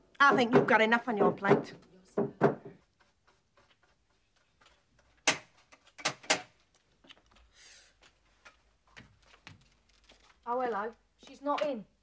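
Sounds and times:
sharp knocks: 0:00.2 - 0:02.8.

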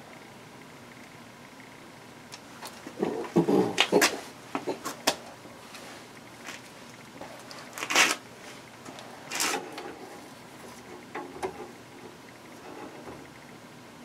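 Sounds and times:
rustling of parts and tools: 0:02.6 - 0:13.2.

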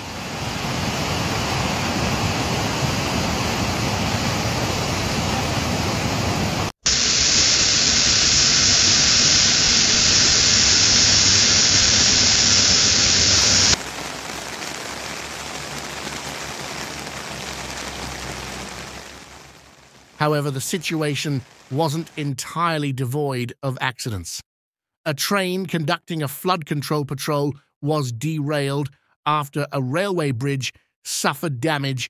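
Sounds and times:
rushing floodwater: 0:00.0 - 0:06.7
churning torrent hiss: 0:00.0 - 0:14.5, 0:20.2 - 0:22.3.

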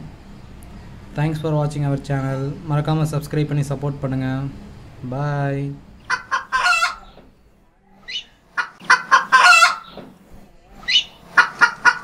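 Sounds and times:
chicken squawks: 0:06.0 - 0:07.2, 0:08.0 - 0:10.0, 0:10.8 - 0:12.0
chicken clucking: 0:06.0 - 0:07.3, 0:08.0 - 0:10.0, 0:10.6 - 0:12.0.

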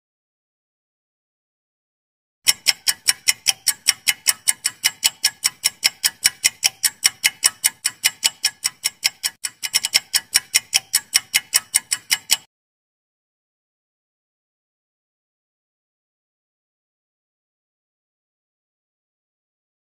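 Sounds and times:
fast clock-like ticking: 0:02.4 - 0:12.5.

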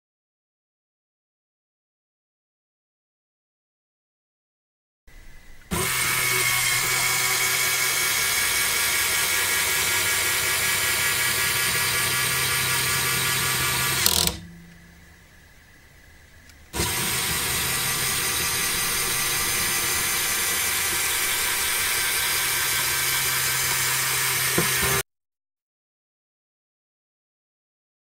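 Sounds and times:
toy electric motor whirring: 0:05.7 - 0:14.4, 0:16.8 - 0:25.0
sharp click: 0:13.9 - 0:14.8.

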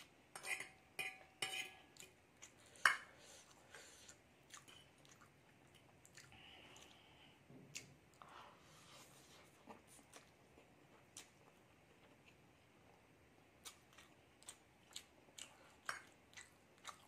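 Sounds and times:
fork clinking on glass plate: 0:00.4 - 0:01.8
person chewing: 0:01.9 - 0:17.0.

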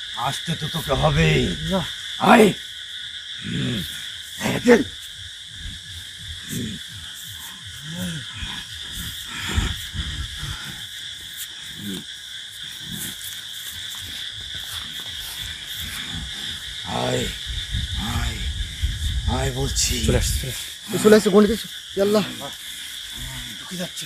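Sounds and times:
insects chirring: 0:00.0 - 0:24.0
man growling grunts: 0:03.4 - 0:04.9, 0:06.4 - 0:10.8.

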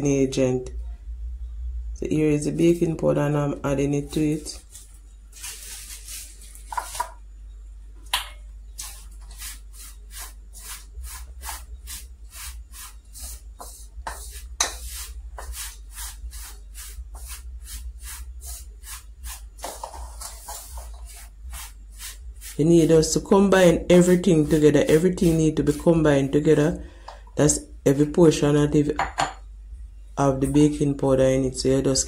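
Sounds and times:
wooden spoon scraping a pan: 0:08.8 - 0:23.1, 0:23.9 - 0:26.6.

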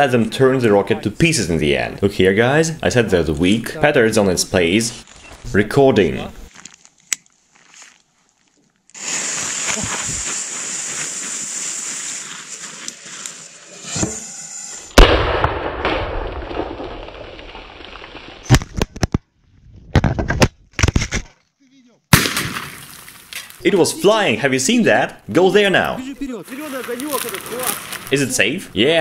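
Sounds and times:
firecracker fuse hissing: 0:08.9 - 0:15.0
rocket rushing noise: 0:13.7 - 0:17.8
loud firecracker bang: 0:14.9 - 0:17.3, 0:22.1 - 0:22.8.

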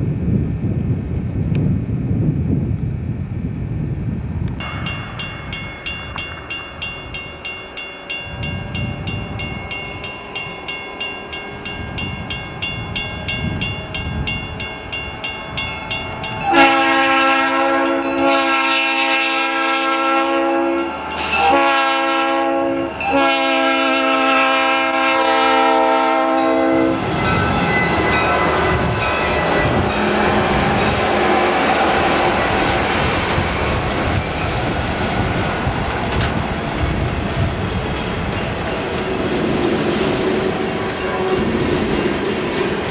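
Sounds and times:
diesel locomotive rumble: 0:00.0 - 0:42.9
train engines and wheels roaring: 0:00.0 - 0:42.9
train air horn blasts: 0:16.4 - 0:32.8, 0:40.4 - 0:41.7.

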